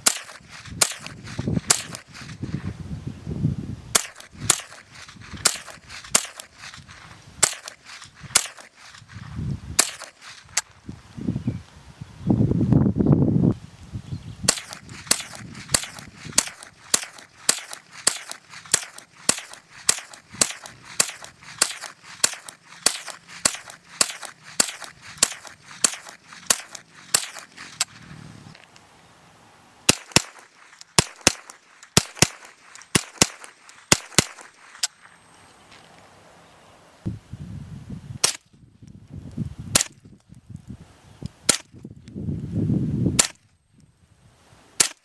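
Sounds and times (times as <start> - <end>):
rifle shots: 0.0 - 2.4, 3.9 - 9.2, 9.8 - 10.6, 14.5 - 28.1, 29.9 - 34.9, 39.7 - 40.0, 43.2 - 43.4.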